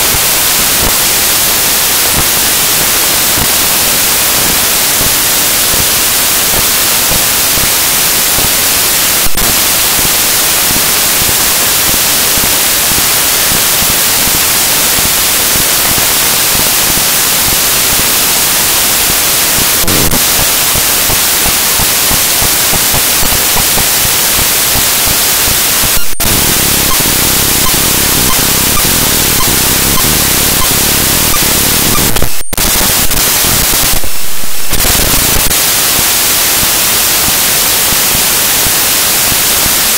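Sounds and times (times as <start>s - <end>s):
loud static hiss: 0.0s - 39.9s
sharp clicks: 25.8s - 35.6s.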